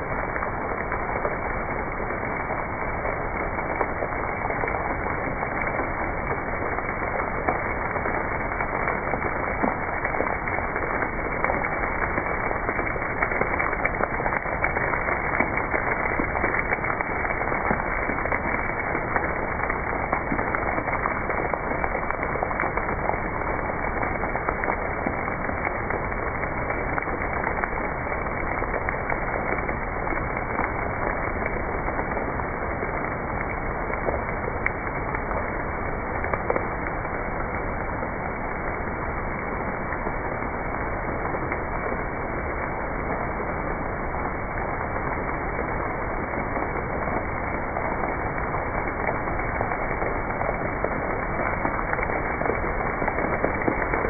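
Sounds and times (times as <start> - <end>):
water dripping and splashing on rock: 0.0 - 54.0.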